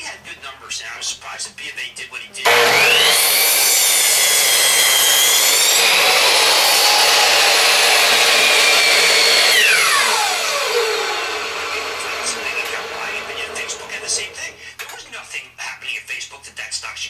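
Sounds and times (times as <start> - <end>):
miter saw cutting wood: 2.4 - 14.6
saw motor winding down: 2.4 - 14.6.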